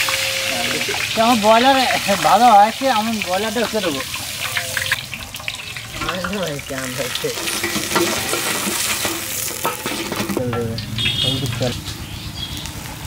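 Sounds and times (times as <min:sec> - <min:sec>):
hot oil sizzling in wok: 0:00.0 - 0:13.0
metal skimmer scraping and clinking: 0:04.1 - 0:11.8.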